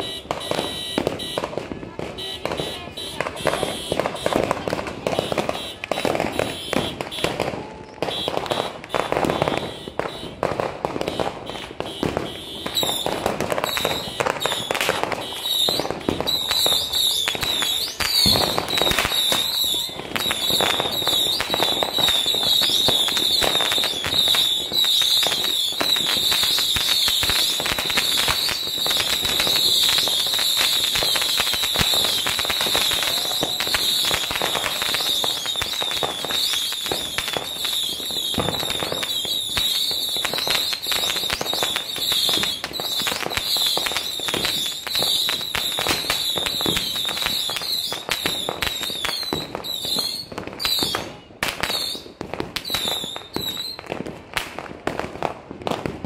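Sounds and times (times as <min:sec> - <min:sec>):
fireworks bangs and crackles: 0:00.0 - 0:56.0.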